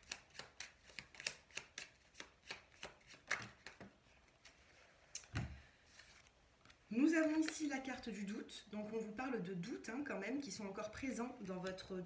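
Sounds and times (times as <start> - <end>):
cards being shuffled: 0.0 - 7.7.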